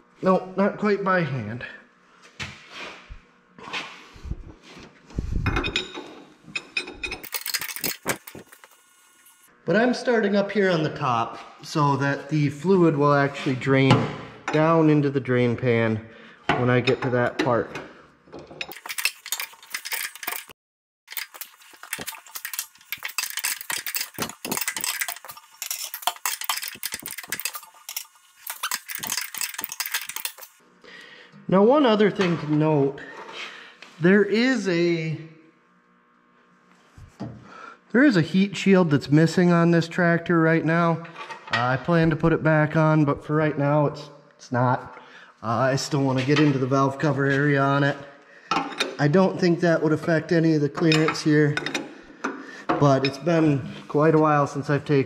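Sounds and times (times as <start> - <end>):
metal tools clinking: 5.5 - 8.8, 18.6 - 20.5, 21.1 - 30.6.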